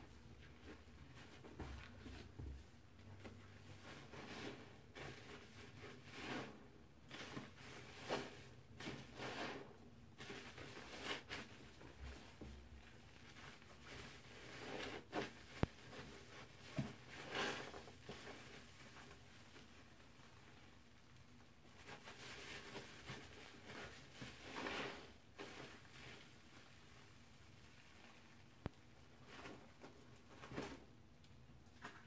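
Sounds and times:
wet sponges squelching: 0:03.2 - 0:20.6.

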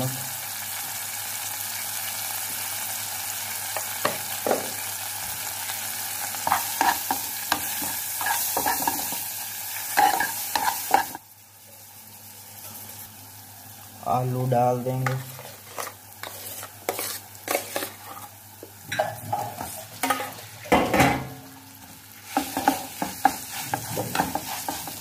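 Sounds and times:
masala sizzling in a pan: 0:00.0 - 0:25.0
metal spoon scraping pan: 0:15.0 - 0:20.8, 0:22.3 - 0:25.0.

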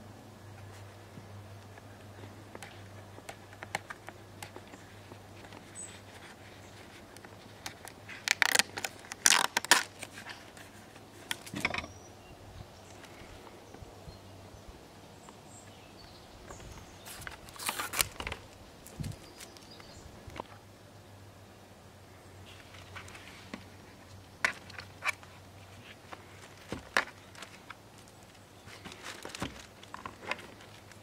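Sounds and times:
plastic film crackling as peeled: 0:02.7 - 0:10.7, 0:17.0 - 0:19.7, 0:24.6 - 0:31.0.

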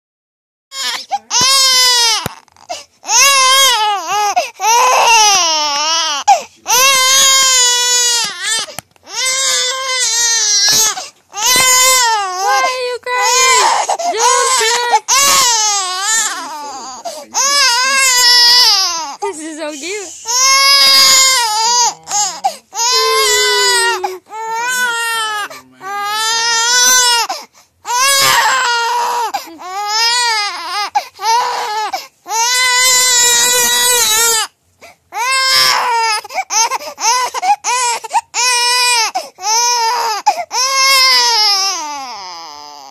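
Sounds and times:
infant crying: 0:00.7 - 0:42.9.

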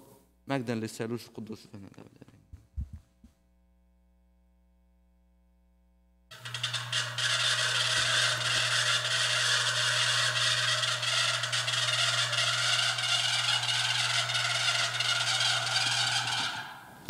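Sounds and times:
electrical hum: 0:01.2 - 0:17.0.

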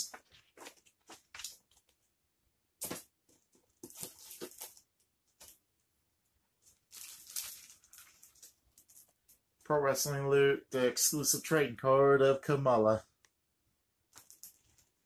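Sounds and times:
paper and packaging rustling: 0:00.0 - 0:02.0, 0:02.8 - 0:05.6, 0:06.6 - 0:09.4.

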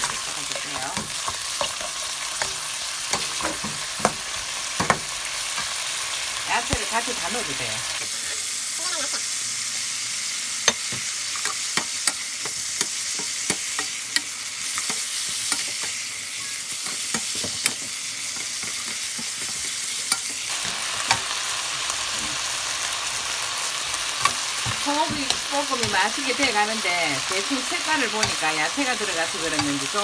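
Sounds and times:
food sizzling in oil: 0:00.0 - 0:30.0
wooden spoons knocking on pan: 0:03.2 - 0:05.1, 0:24.2 - 0:26.2.

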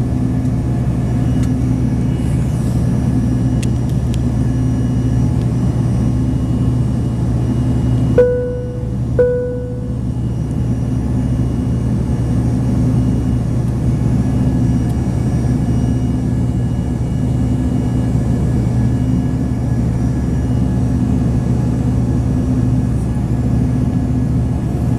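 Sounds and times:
jet cabin drone: 0:00.0 - 0:24.9
faint whining tones: 0:07.8 - 0:10.6.

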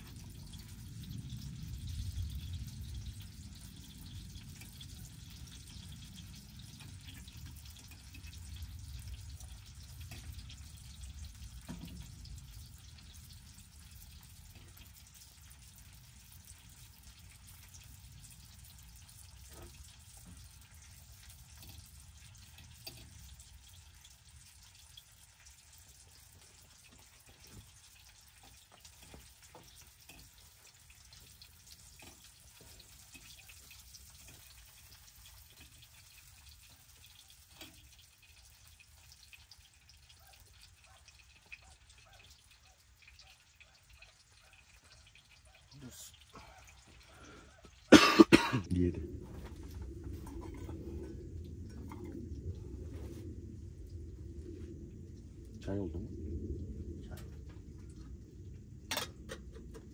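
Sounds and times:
meat sizzling in a pan: 0:00.0 - 0:48.5
low rumble: 0:48.6 - 0:59.9.

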